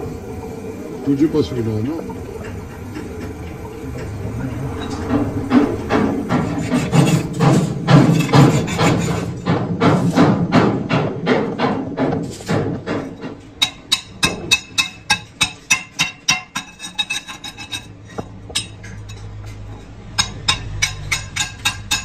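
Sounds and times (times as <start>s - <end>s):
hammer striking steel: 4.8s - 17.9s, 20.2s - 22.0s.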